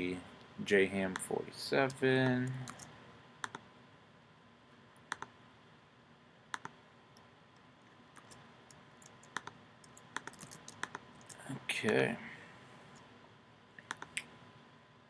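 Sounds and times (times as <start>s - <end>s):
mouse clicks: 2.7s - 3.6s, 5.1s - 5.3s, 6.5s - 7.3s, 8.2s - 12.0s, 13.8s - 14.3s
keyboard key presses: 9.0s - 11.4s.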